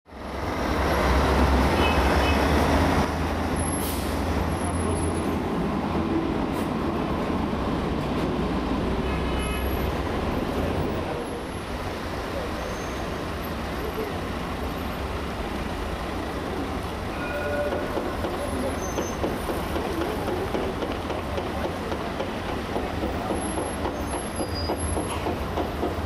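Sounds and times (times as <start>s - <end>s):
heavy traffic rumble: 0.1s - 26.0s.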